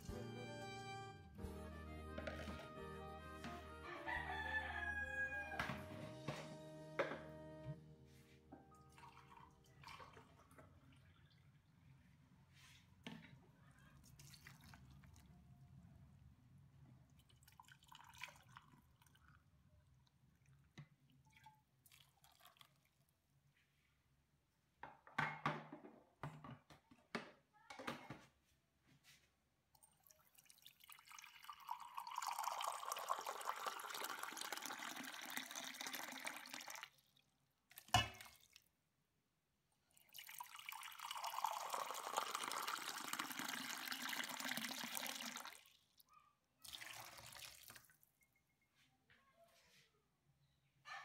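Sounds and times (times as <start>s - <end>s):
water pouring into bowl: 8.9s - 11.1s, 17.2s - 19.4s, 30.0s - 37.2s, 40.0s - 45.8s, 46.6s - 48.0s.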